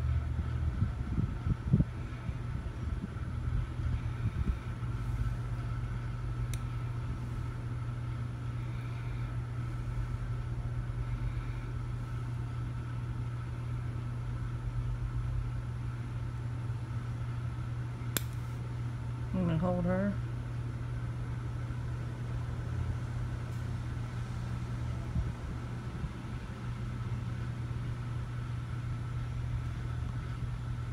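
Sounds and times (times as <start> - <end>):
faint whine: 0.0 - 16.3
low mechanical hum: 0.0 - 30.9.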